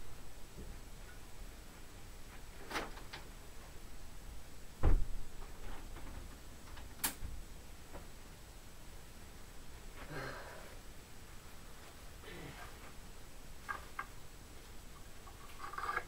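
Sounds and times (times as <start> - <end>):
clicks and knocks at a closet: 2.3 - 3.4, 4.8 - 8.1
loud dull thump: 4.8 - 5.2.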